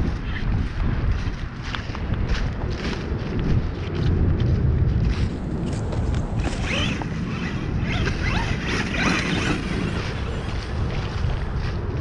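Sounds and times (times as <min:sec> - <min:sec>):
low rumble: 0:00.0 - 0:12.0
electric motor whining: 0:05.8 - 0:10.8.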